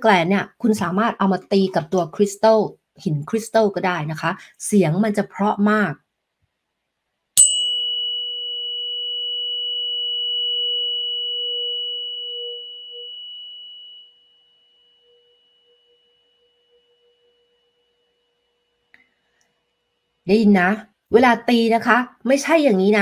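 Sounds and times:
tuning fork striking stone: 7.4s - 19.0s
tuning fork ringing: 7.4s - 20.0s.

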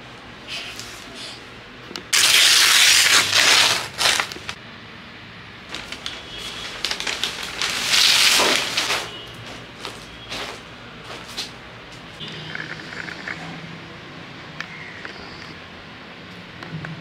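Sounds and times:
newspaper rustling and crumpling: 2.2s - 4.6s, 5.7s - 11.5s.

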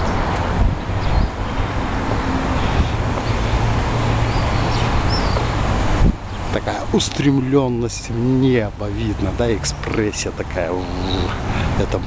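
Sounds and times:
city noise: 0.0s - 12.0s
wind: 0.0s - 12.0s.

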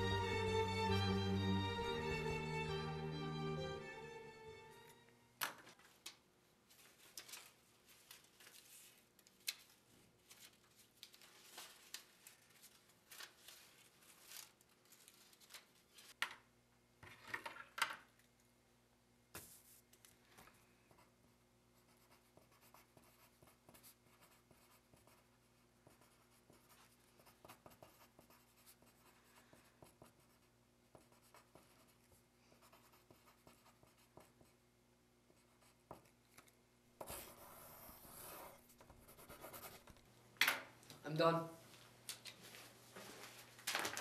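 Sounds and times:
pen scratching on paper: 21.8s - 32.0s, 32.6s - 34.6s, 37.0s - 39.8s.

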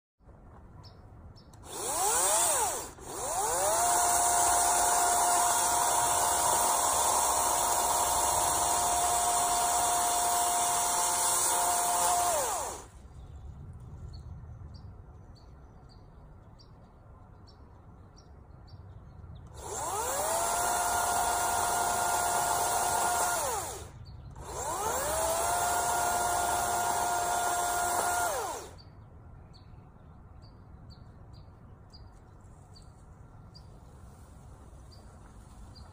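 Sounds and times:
cordless chainsaw whining: 1.6s - 13.0s, 19.5s - 28.8s.

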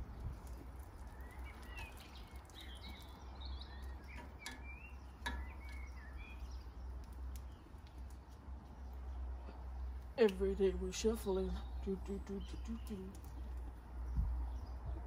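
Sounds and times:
small birds chirping: 0.0s - 15.0s
tongs clicking on grill grate: 3.7s - 8.4s.

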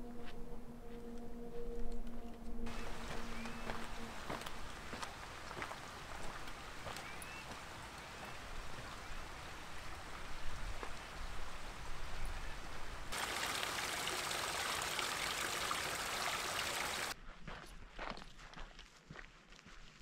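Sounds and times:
water cascading over boulders: 2.7s - 3.2s, 4.0s - 12.0s, 13.1s - 17.2s
footsteps on rocky trail: 2.7s - 8.9s, 17.2s - 20.0s.

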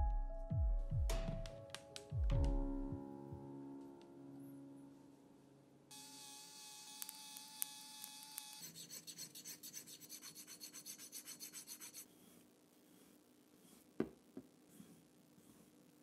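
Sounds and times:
small motor whining: 5.9s - 8.6s
metal file rasping: 8.4s - 13.9s.

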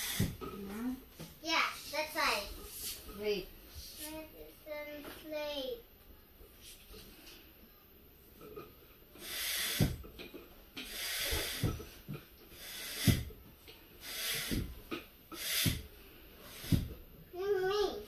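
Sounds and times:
hand air pump strokes: 0.0s - 0.4s, 9.2s - 10.1s, 10.8s - 11.9s, 12.5s - 13.3s, 14.0s - 17.0s.

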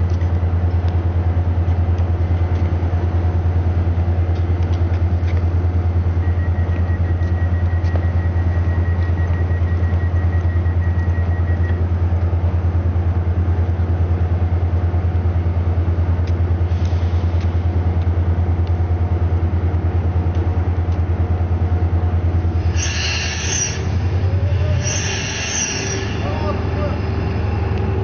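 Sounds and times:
diesel train engine idling: 0.0s - 28.0s
air hiss: 22.6s - 26.6s.

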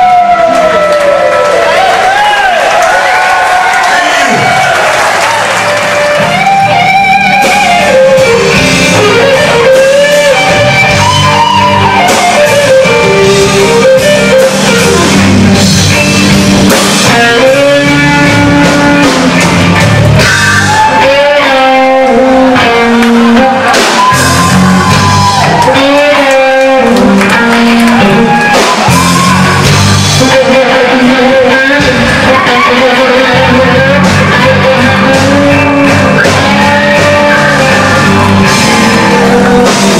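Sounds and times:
bass and drums: 0.0s - 39.9s
electric guitar lead with bends: 5.6s - 39.9s.

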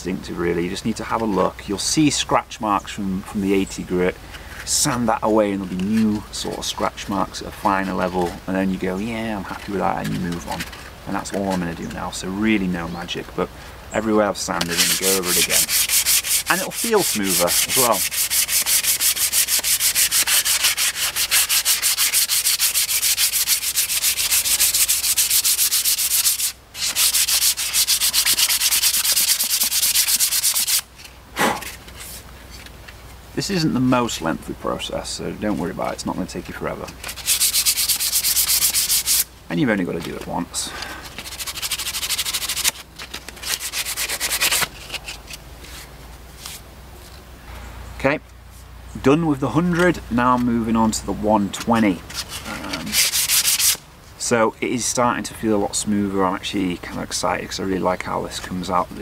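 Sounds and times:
sandpaper rubbing on wood: 14.3s - 30.9s, 36.9s - 39.3s, 41.0s - 46.6s, 49.6s - 53.8s.

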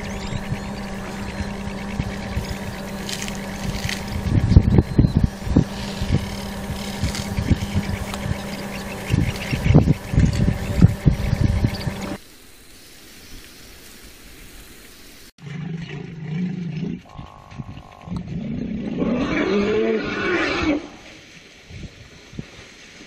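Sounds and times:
loud rough sounds: 0.0s - 12.2s.

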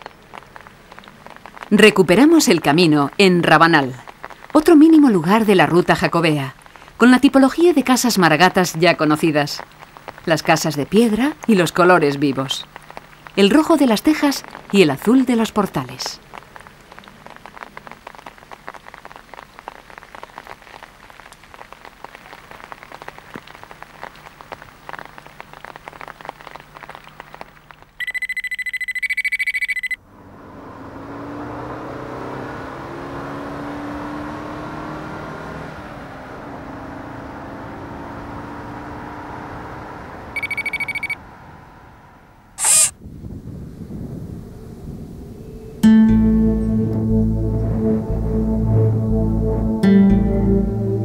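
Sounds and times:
rain pattering on stone street: 0.0s - 28.4s, 31.0s - 41.2s
flat electronic tone: 40.4s - 41.2s
electronic whoosh: 42.6s - 42.9s.

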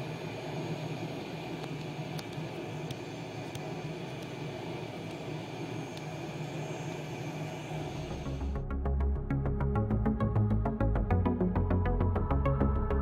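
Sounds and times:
jet engine noise: 0.0s - 8.6s.

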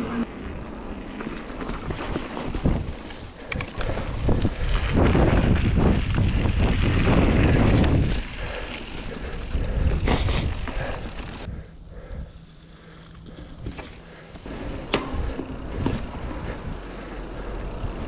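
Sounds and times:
bike knocks and rattles: 1.1s - 11.4s, 13.2s - 18.0s
wind rushing over microphone: 2.4s - 11.6s.

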